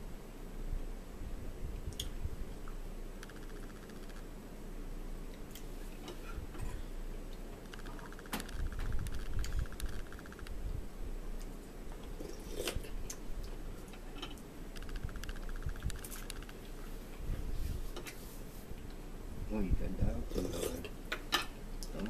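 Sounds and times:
steady low hum: 0:00.0 - 0:22.0
typing taps on smartphone: 0:03.2 - 0:04.2, 0:07.6 - 0:10.6, 0:14.8 - 0:16.6.

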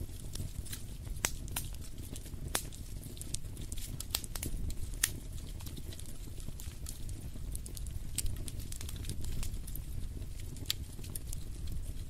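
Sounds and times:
wood fire crackling: 0:00.0 - 0:12.0.

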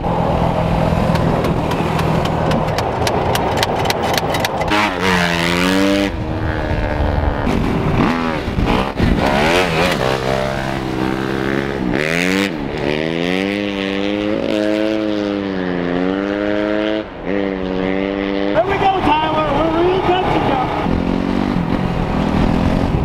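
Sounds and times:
utility vehicle engine running: 0:00.0 - 0:05.6
gravel noise: 0:00.0 - 0:11.7
wind noise: 0:00.0 - 0:14.4, 0:16.3 - 0:23.0.

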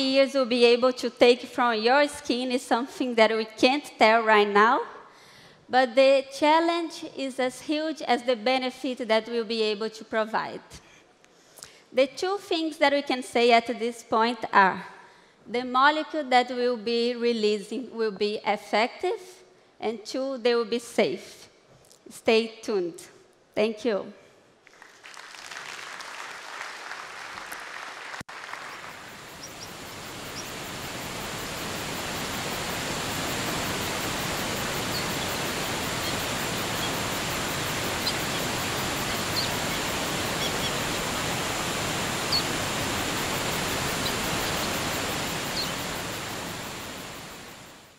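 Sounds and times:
audience applause: 0:24.6 - 0:29.3
waterfall rushing water: 0:28.3 - 0:47.9
faint bird chirps: 0:28.7 - 0:31.0, 0:33.7 - 0:41.2, 0:42.2 - 0:42.6, 0:43.4 - 0:46.1.

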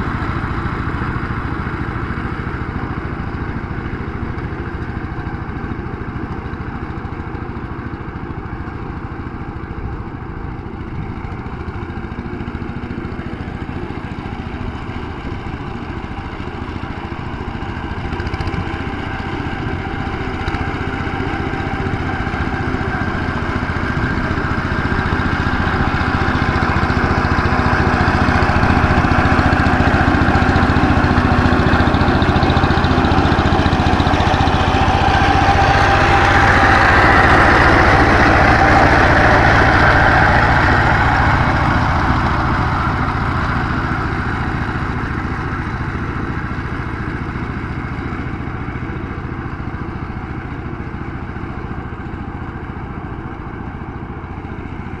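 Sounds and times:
diesel power tiller engine running: 0:00.0 - 0:55.0.

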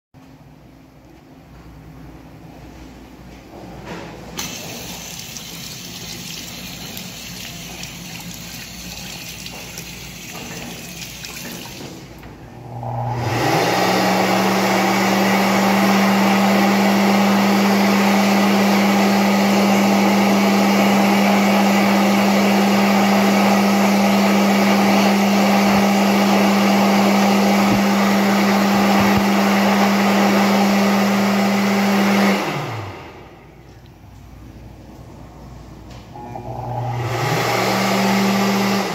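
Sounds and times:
water running from faucet: 0:04.4 - 0:12.1
hand dryer humming: 0:04.4 - 0:33.4, 0:36.1 - 0:38.9.

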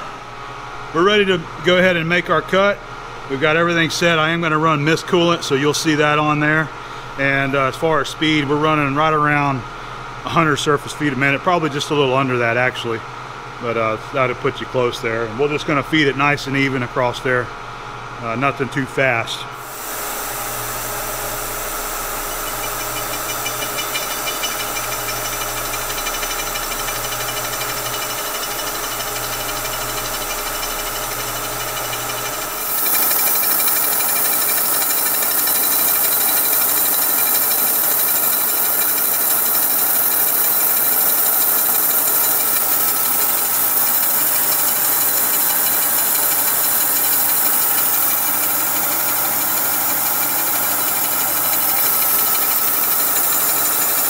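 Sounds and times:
coolant hiss: 0:19.6 - 0:54.0
milling machine drone: 0:19.6 - 0:54.0.

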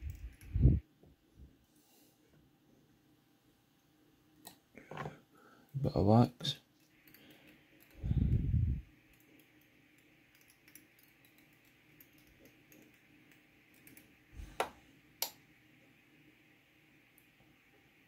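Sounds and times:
small tools ticking and tapping: 0:06.8 - 0:08.0, 0:09.1 - 0:14.1.

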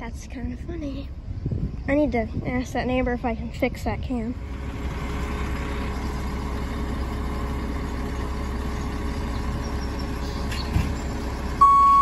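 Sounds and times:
diesel engine rumbling: 0:00.0 - 0:12.0
reversing beeper: 0:11.6 - 0:12.0.

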